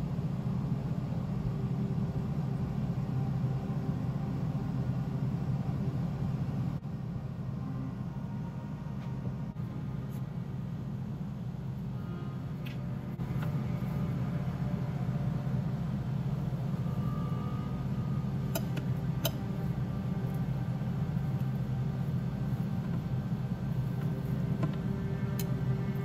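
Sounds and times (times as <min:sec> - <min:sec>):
low droning hum: 0:00.0 - 0:26.0.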